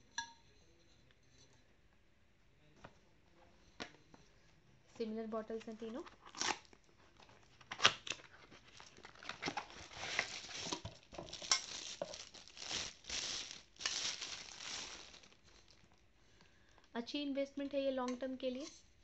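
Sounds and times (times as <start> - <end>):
cardboard packaging rustling: 6.1 - 16.0.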